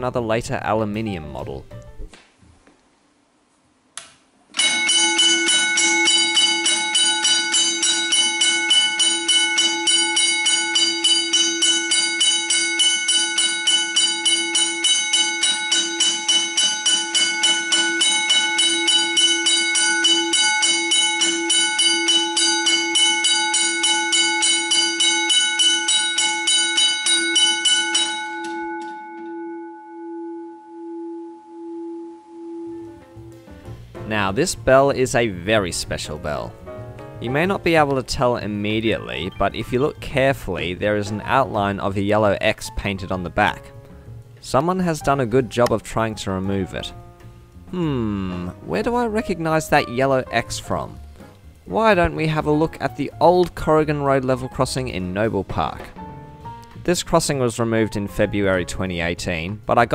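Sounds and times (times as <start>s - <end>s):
electric bell striker ringing: 4.5s - 31.0s
gong ringing on: 4.6s - 33.8s.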